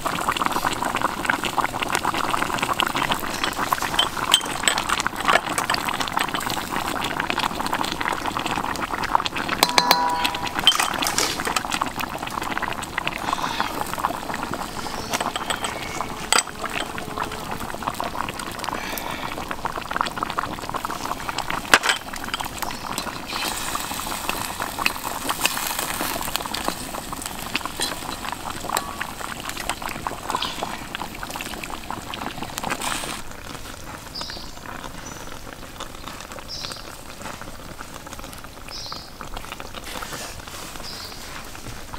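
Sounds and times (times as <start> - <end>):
sauce bubbling and popping: 0.0 - 40.5
liquid pouring from a cup: 0.5 - 33.2.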